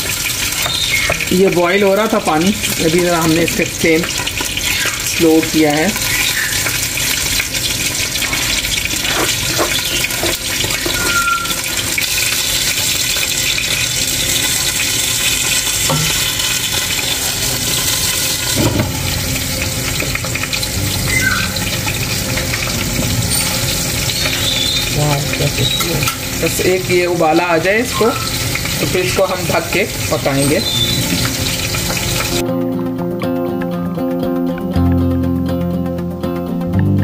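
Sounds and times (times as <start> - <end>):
water hissing and bubbling in pot: 0.0 - 32.4
ladle knocking against pot: 15.9 - 16.4, 17.7 - 20.3.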